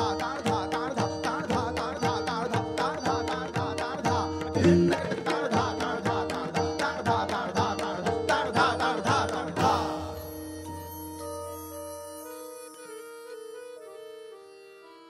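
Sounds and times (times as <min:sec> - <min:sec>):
tabla drumming: 0:00.0 - 0:10.8
held melodic accompaniment: 0:07.1 - 0:15.0.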